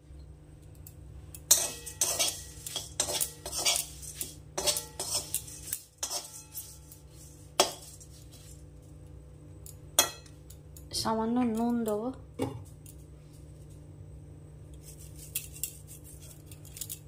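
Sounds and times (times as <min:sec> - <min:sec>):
metal clank on wok: 0:01.4 - 0:07.0, 0:10.0 - 0:10.4
metal spatula scraping a wok: 0:01.5 - 0:08.6.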